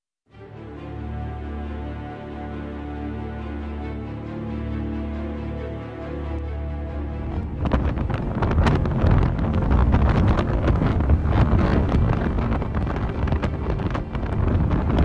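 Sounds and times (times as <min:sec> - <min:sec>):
wind hitting microphone: 0:06.9 - 0:15.0.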